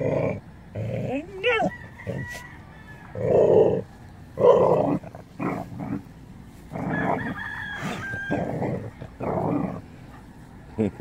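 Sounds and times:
rooster crowing: 1.5 - 3.9, 6.7 - 9.1.

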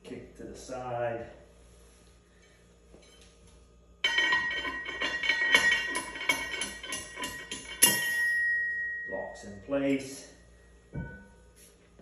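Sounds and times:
steel bar striking ringing steel casing: 4.0 - 10.1, 11.0 - 11.4.

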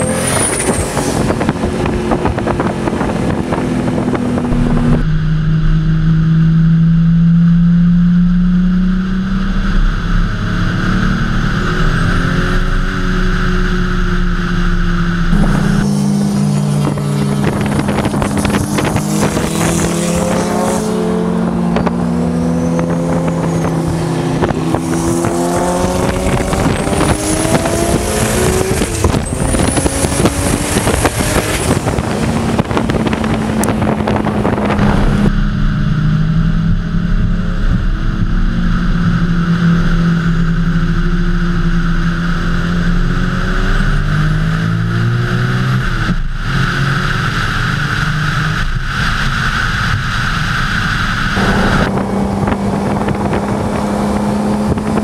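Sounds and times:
car engine accelerating through gears: 0.0 - 55.0
wind noise: 0.0 - 55.0.

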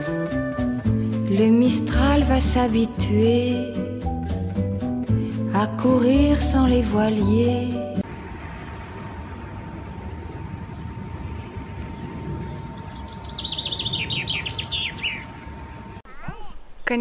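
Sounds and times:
low outdoor rumble: 4.4 - 17.0
songbird trilling: 12.0 - 15.4.

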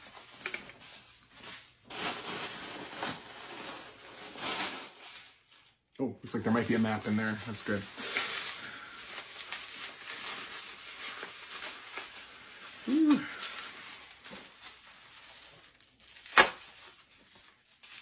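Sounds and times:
packaging rustling and crinkling: 0.0 - 18.0
person humming: 12.8 - 13.4.

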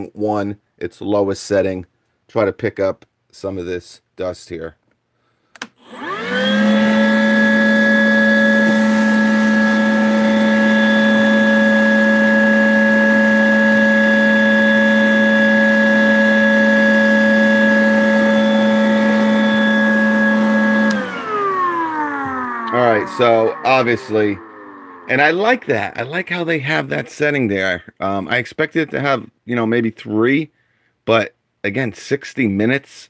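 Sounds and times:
vacuum motor whine: 5.8 - 27.0
vacuum switch click: 20.8 - 21.3.

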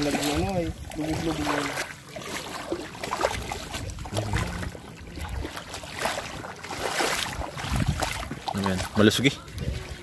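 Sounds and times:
seawater sloshing and splashing: 0.0 - 10.0
wind buffeting microphone: 2.4 - 10.0.

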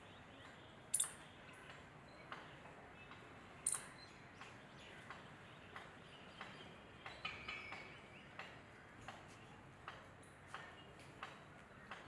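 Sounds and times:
bird chirping call: 0.9 - 1.2, 3.6 - 4.2.

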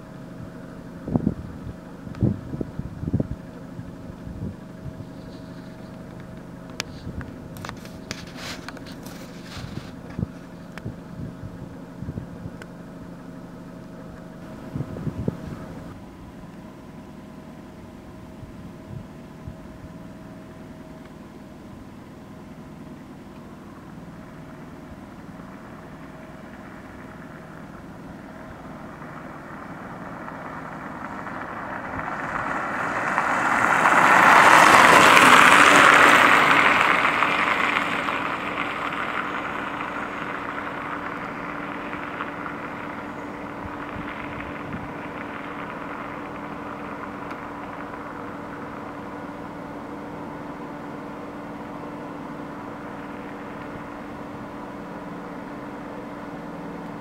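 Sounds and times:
low engine hum: 0.0 - 57.0
road vehicle passing by: 1.0 - 12.2, 22.9 - 57.0.

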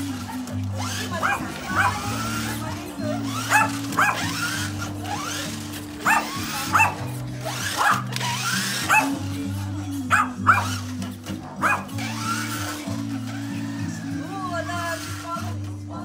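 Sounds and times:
background music with bass: 0.0 - 16.0
small dog yapping: 1.1 - 2.4, 3.2 - 5.2, 6.0 - 9.2, 10.1 - 10.8, 11.6 - 12.0.

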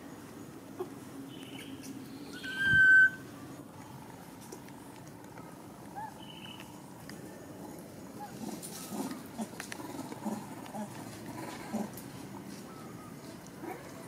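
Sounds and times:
soft monkey call: 2.3 - 3.3.

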